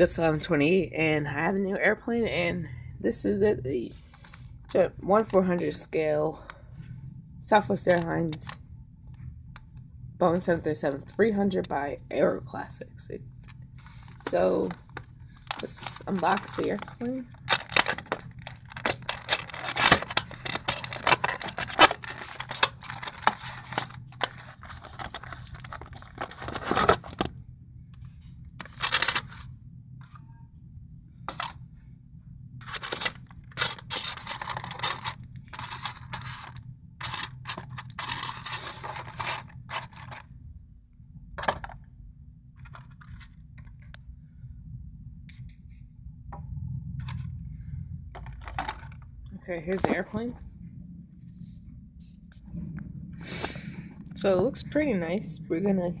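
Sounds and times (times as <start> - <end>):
cardboard and paper tearing: 15.6 - 27.3, 32.6 - 40.2.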